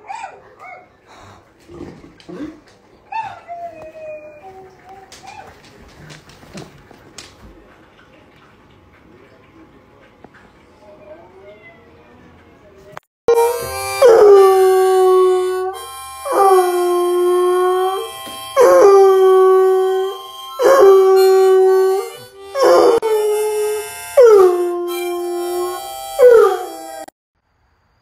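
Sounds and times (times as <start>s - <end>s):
dog howling: 13.4s - 27.1s.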